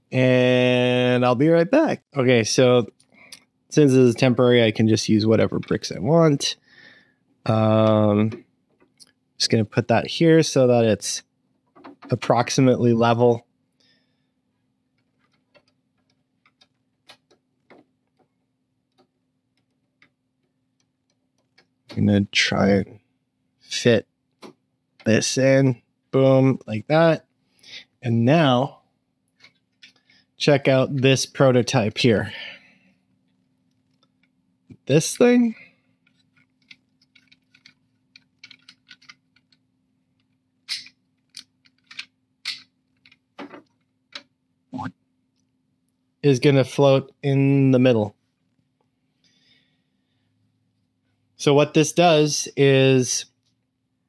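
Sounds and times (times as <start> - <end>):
faint steady hum: 0.0 - 54.0
plastic bricks clicking and rattling: 36.1 - 39.6
plastic bricks clicking: 36.3 - 39.6, 40.7 - 44.3.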